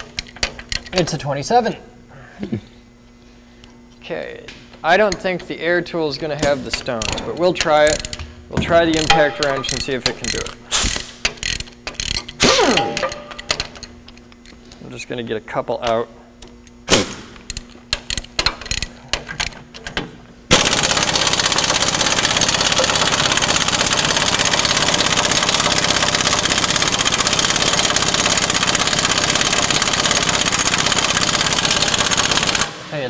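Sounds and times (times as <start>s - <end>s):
pneumatic impact wrench hammering: 6.4s - 14.1s, 16.8s - 32.8s
metal clinks and knocks: 6.7s - 10.6s, 11.2s - 14.6s.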